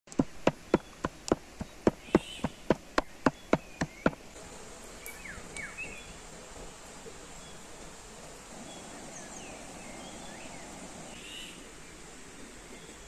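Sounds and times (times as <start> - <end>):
cleaver chopping on wooden board: 0.1 - 4.2.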